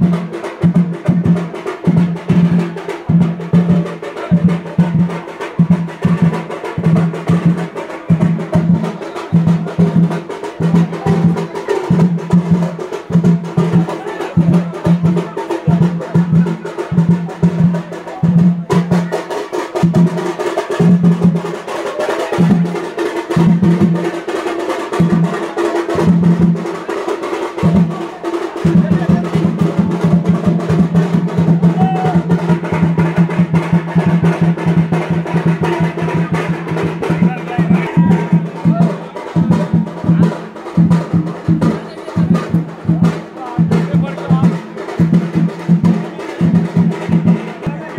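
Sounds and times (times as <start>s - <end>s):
drums playing a rhythm: 0.0s - 47.9s.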